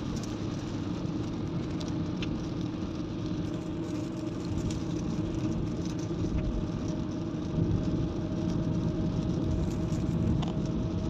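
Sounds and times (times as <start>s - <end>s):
car engine and tyre rumble: 0.0s - 11.0s.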